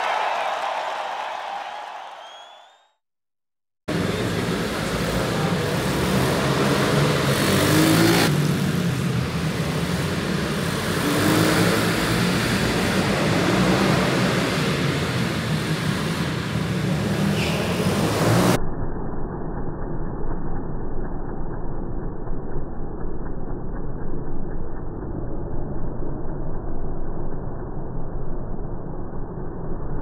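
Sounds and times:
pit bike engines revving: 0:03.9 - 0:18.6.

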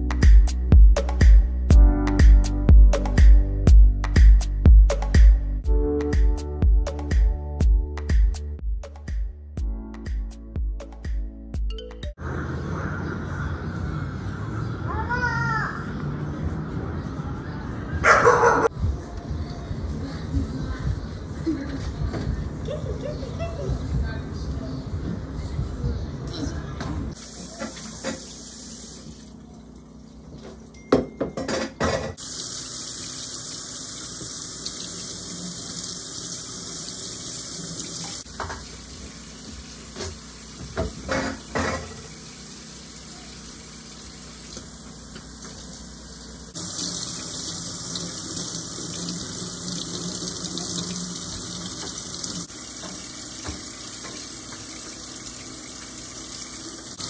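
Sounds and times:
tap running into steel sink: 0:52.8 - 0:55.0.

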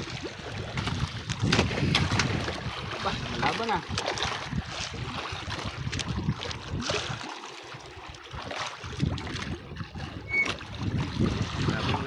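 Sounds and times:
wind on microphone: 0:00.0 - 0:07.3, 0:07.9 - 0:12.0
water splashing against boat: 0:00.0 - 0:12.0.

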